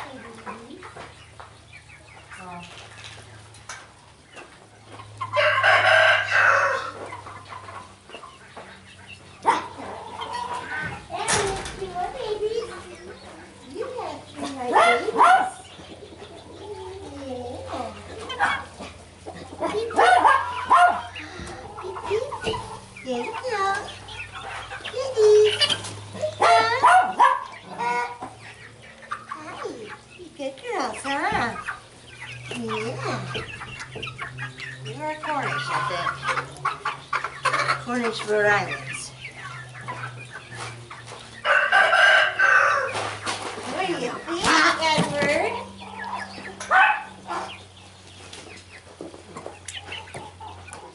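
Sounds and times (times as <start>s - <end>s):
chickens clucking and squawking: 0.0s - 50.9s
rooster crowing: 5.3s - 7.0s, 41.4s - 43.0s.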